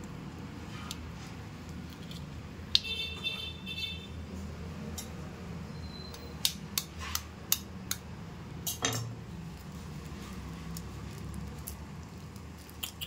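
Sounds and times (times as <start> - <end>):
egg shell cracking: 10.7 - 13.0.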